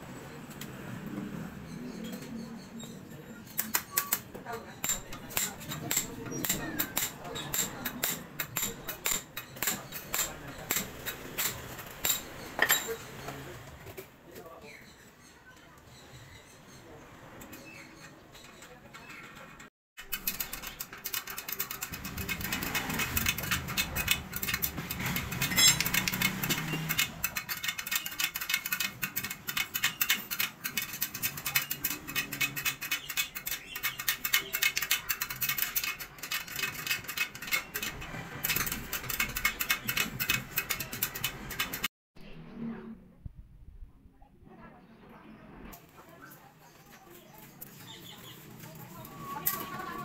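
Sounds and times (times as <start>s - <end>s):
metallic clicking of wheel spokes: 20.0s - 41.9s.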